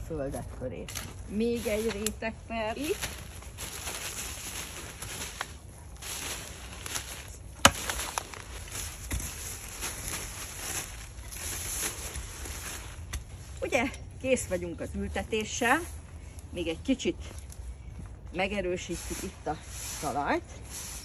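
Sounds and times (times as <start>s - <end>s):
plastic bag rustling: 1.0s - 13.9s.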